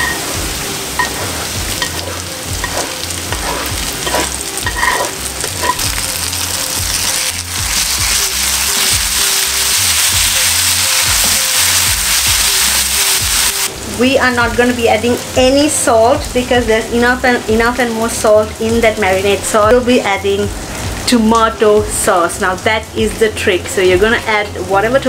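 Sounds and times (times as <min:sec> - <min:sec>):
onions sizzling in a frying pan: 0:00.0 - 0:25.0
spatula clacking against pan: 0:01.0 - 0:05.9.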